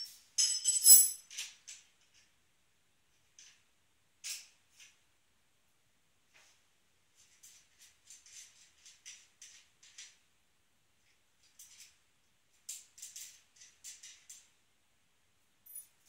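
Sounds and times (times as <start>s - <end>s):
faint clicks and scrapes on bike wheel: 7.2s - 10.2s.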